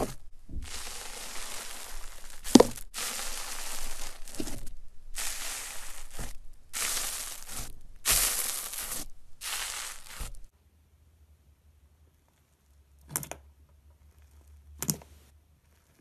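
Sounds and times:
hand crushing foam slime: 0.0 - 10.5.

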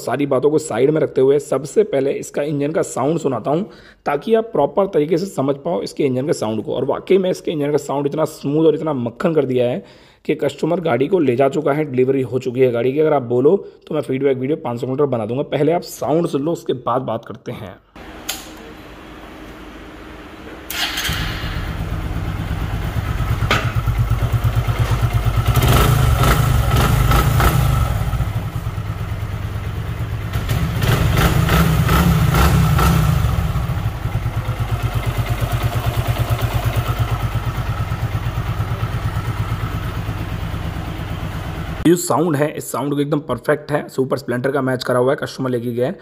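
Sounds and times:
motorcycle engine starting and idling: 20.4 - 41.8
motorcycle engine revving: 20.7 - 41.8.

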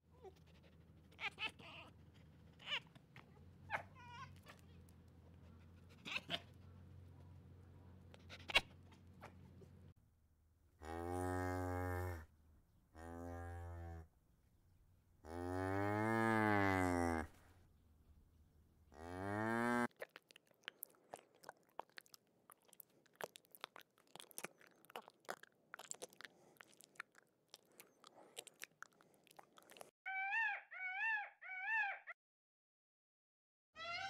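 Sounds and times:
cattle mooing: 15.3 - 17.3
peafowl calling: 30.1 - 32.2.

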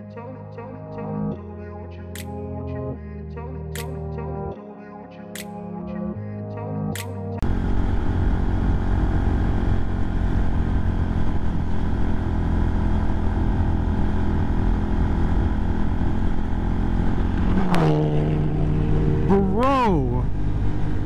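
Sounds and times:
motorcycle engine running: 7.4 - 19.6
wind and road noise: 7.4 - 21.0.

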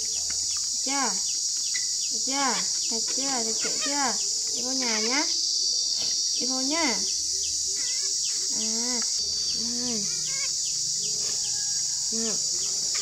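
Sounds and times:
insects droning: 0.0 - 13.0
rising and falling calls: 6.8 - 13.0.

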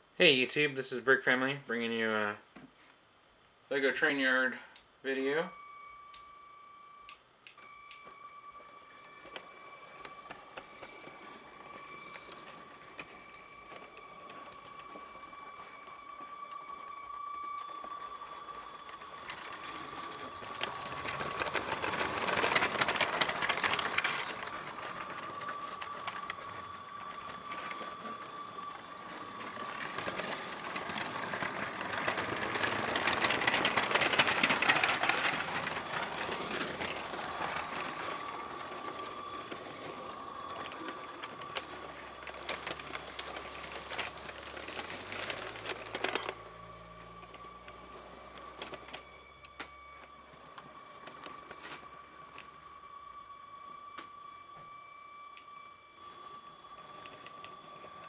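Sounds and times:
steady thin whine: 0.0 - 58.0
toy train wheels clattering: 9.2 - 49.6.

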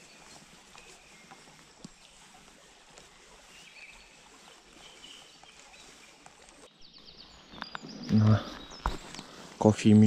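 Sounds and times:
bird chirps: 0.0 - 9.6
faint outdoor hiss: 0.0 - 10.0.

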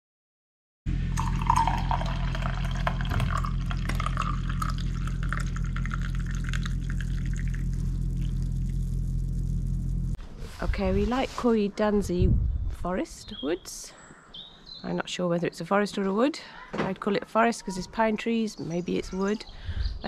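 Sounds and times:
low hum: 0.9 - 13.4
tea pouring into mug: 1.2 - 8.4.

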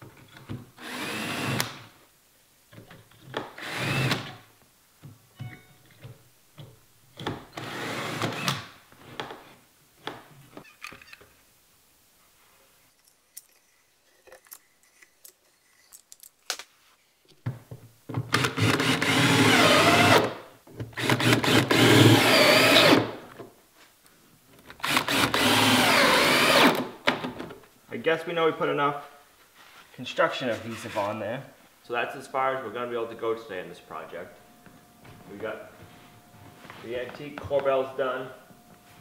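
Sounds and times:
cordless drill driving screws: 0.8 - 1.7, 3.6 - 4.4, 7.6 - 8.6, 18.4 - 20.3, 21.0 - 23.1, 24.8 - 26.8.

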